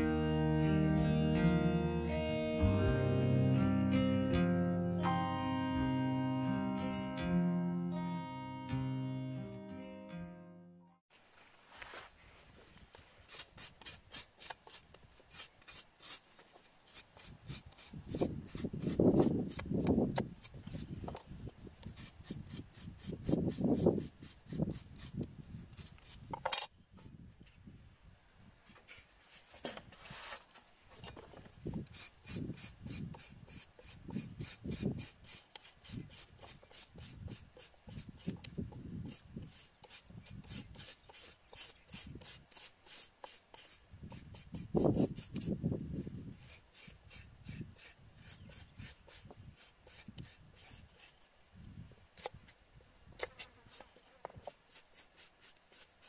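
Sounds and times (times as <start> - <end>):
cleaver scraping lemongrass: 11.4 - 26.4, 31.7 - 51.2, 53.2 - 56.0.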